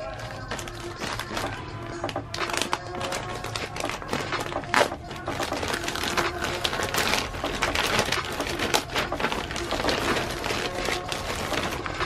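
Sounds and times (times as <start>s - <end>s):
plastic bag tearing and crinkling: 0.0s - 12.0s
plastic bag slit with knife: 2.4s - 12.0s.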